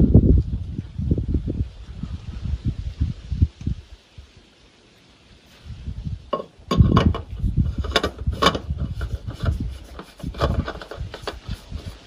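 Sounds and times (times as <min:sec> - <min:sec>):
tools clicking and knocking: 0:06.4 - 0:08.7.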